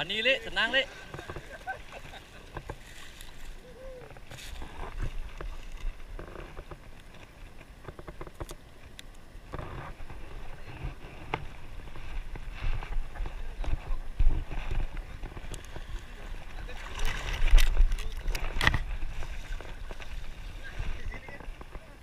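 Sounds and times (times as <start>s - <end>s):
seawater sloshing and lapping: 0.4s - 8.5s, 9.5s - 22.0s
fishing tackle clicks and knocks: 5.0s - 9.8s, 16.9s - 20.2s
wind on microphone: 9.3s - 22.0s.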